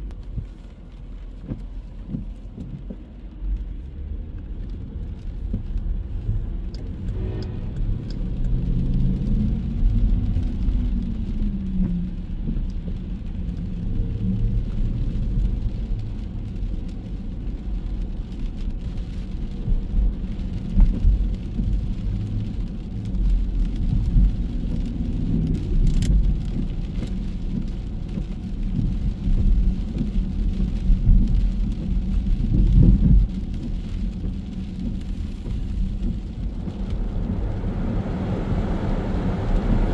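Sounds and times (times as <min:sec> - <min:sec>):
low rumble: 0:00.0 - 0:39.9
car engines passing: 0:00.8 - 0:19.3, 0:30.6 - 0:39.9
rain hiss: 0:05.3 - 0:39.9.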